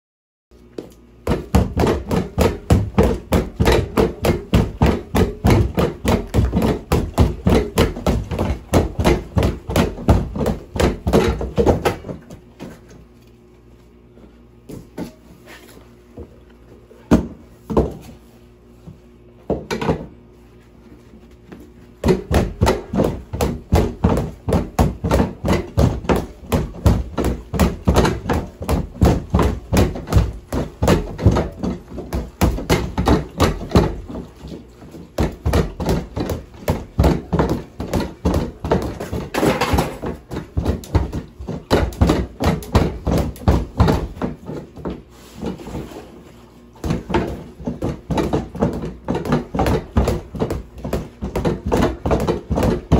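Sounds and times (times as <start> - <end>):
punches thudding on punching bag: 1.2 - 12.3, 22.0 - 34.5, 35.1 - 45.0, 46.8 - 52.9.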